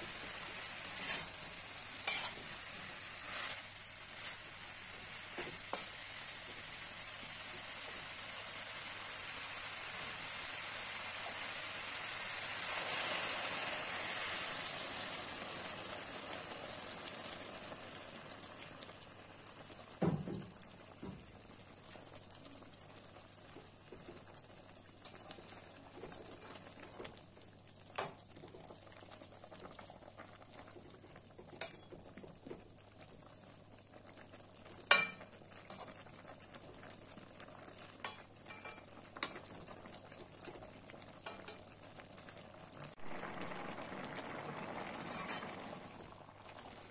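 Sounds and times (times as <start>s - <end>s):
water hissing in hot pan: 0.0s - 46.9s
metal spatula scraping pan: 0.2s - 3.7s, 45.0s - 45.8s.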